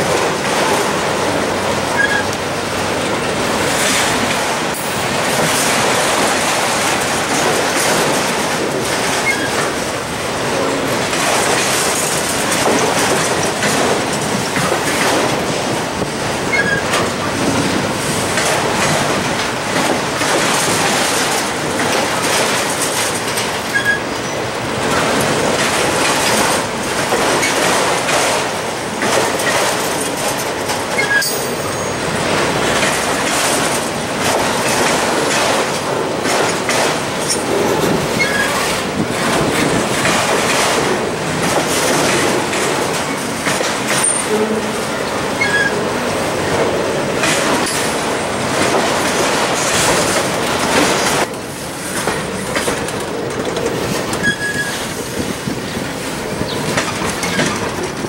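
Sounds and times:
clickety-clack over rail joints: 0.0 - 58.0
train wheels rumbling on rail: 0.0 - 58.0
high wheel squeaks: 1.9 - 2.4, 9.2 - 9.6, 16.5 - 17.0, 23.6 - 24.4, 30.9 - 32.0, 38.1 - 38.7, 44.0 - 45.8, 54.1 - 57.8.

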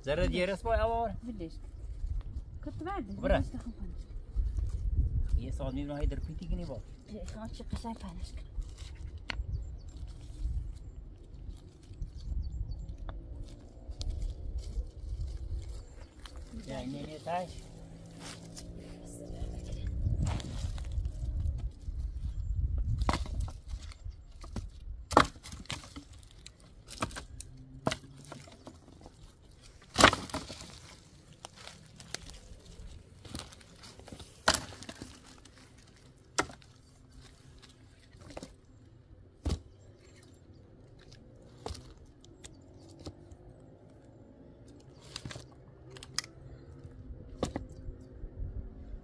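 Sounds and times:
dry sticks knocking and cracking: 7.1 - 10.6, 22.8 - 38.7, 39.4 - 44.0, 44.6 - 46.6, 47.3 - 48.0.

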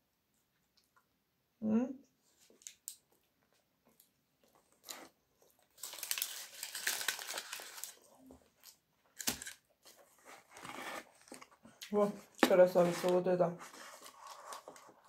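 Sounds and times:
foil crinkling under a hand: 5.8 - 8.0.

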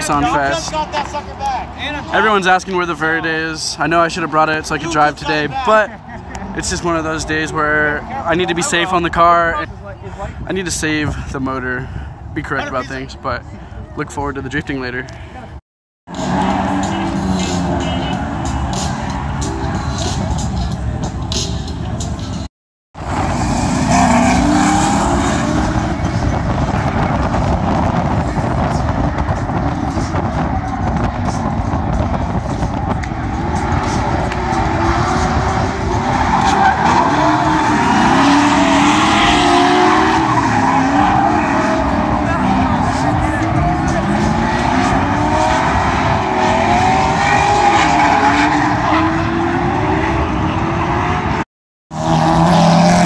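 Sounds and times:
car engines at high revs: 16.1 - 20.7, 23.0 - 53.0.

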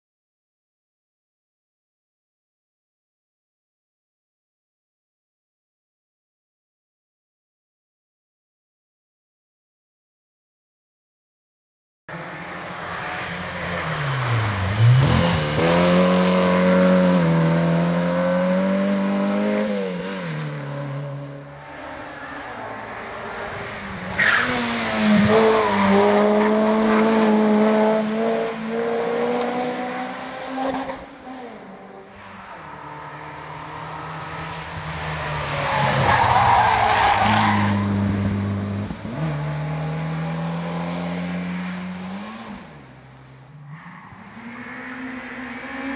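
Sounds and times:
racing car engines revving: 12.1 - 45.9.

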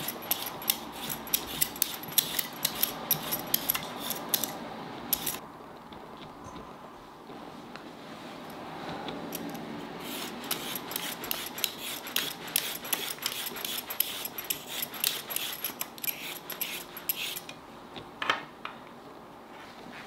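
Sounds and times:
vegetable peeler scraping carrot: 0.0 - 5.4, 10.0 - 17.5.

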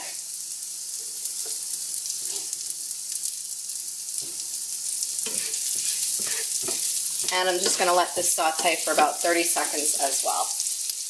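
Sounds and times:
onion sizzling in frying pan: 0.0 - 11.0
wooden spoon scraping pan: 2.2 - 2.5, 5.3 - 9.1.

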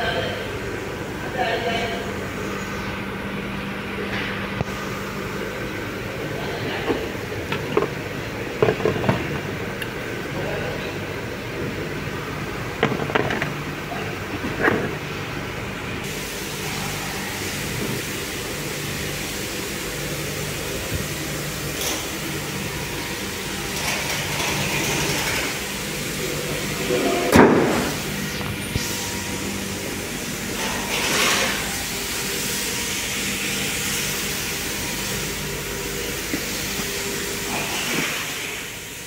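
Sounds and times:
steady low hum: 0.0 - 39.0
car bonnet shutting thud: 27.3 - 27.9.

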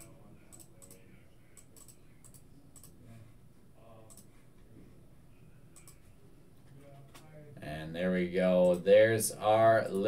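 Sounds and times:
computer mouse and keyboard clicks: 1.6 - 3.0, 4.1 - 4.3, 5.8 - 6.1.

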